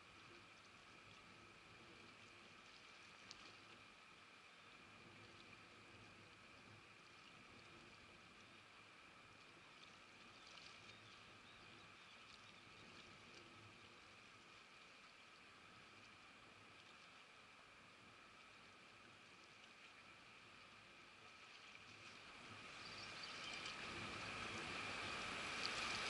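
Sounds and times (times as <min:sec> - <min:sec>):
faint steady hum: 0:00.0 - 0:26.0
faint ticks: 0:00.2 - 0:04.0.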